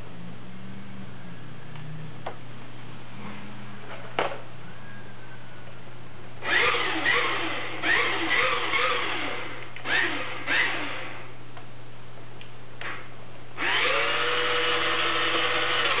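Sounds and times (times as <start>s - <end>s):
model motor and gears whining: 6.4s - 11.2s, 13.6s - 16.0s.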